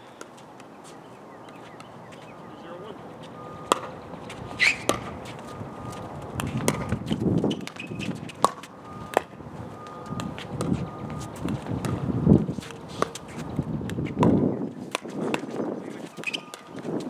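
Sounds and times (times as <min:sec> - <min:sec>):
paddles striking plastic ball: 0:03.7 - 0:03.9
short rising squeak: 0:04.4 - 0:04.9, 0:07.5 - 0:08.2.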